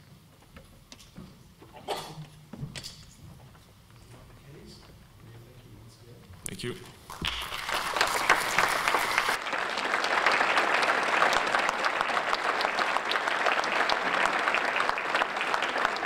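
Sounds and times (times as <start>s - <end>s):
audience applauding: 7.1s - 16.0s.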